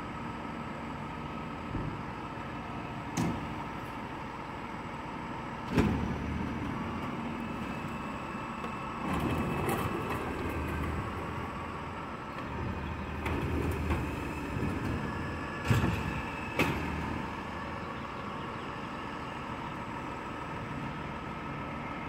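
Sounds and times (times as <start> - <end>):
diesel engine running: 0.0 - 22.0
hydraulic arm tipping bin: 12.3 - 17.9.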